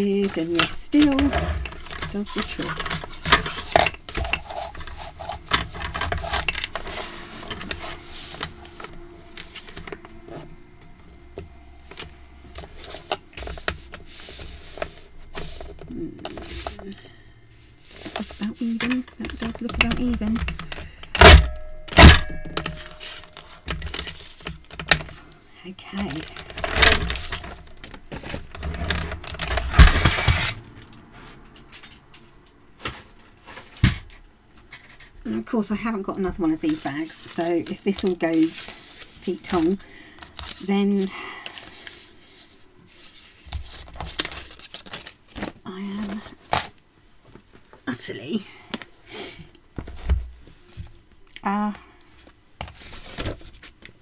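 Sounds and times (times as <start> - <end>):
paper rustling: 0.0 - 10.0, 11.8 - 21.0, 36.6 - 47.6, 52.6 - 53.8
plastic trimmer scraping rattle: 0.2 - 7.8.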